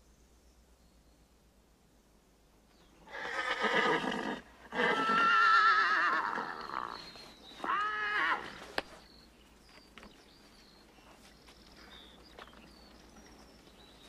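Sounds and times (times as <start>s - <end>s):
horse whinnying: 3.1s - 8.7s.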